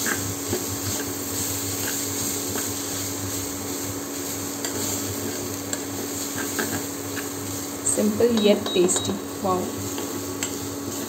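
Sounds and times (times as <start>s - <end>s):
spatula scraping a pan: 0.0s - 7.5s
induction cooktop hum: 0.0s - 11.0s.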